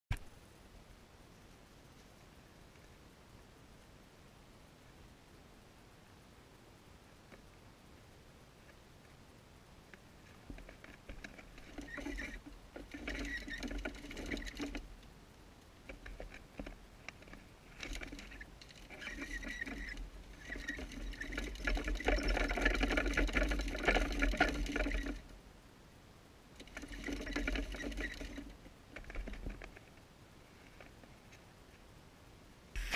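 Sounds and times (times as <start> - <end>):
animal running on plastic wheel: 10.5 - 14.9, 15.9 - 25.3, 26.6 - 29.8.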